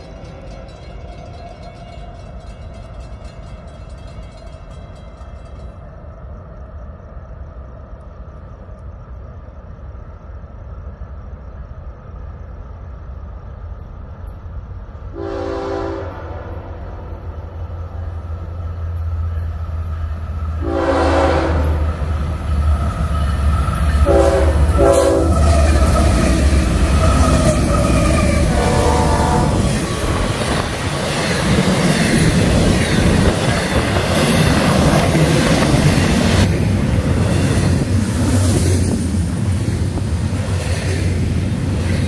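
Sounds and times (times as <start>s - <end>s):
diesel locomotive engine rumble: 0.0s - 42.0s
train rushing past: 9.6s - 42.0s
train horn: 15.1s - 17.5s, 20.6s - 22.0s, 24.0s - 25.9s, 27.4s - 29.8s.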